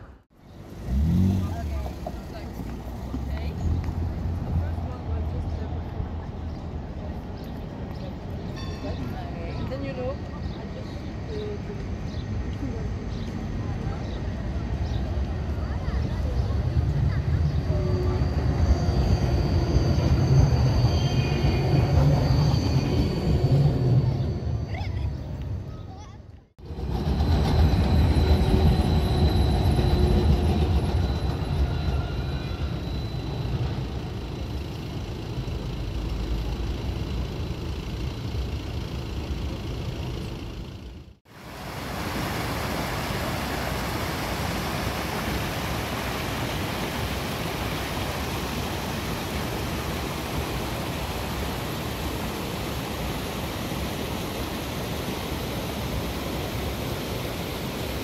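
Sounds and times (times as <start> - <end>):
tram rumble with high whine: 0.0 - 41.2.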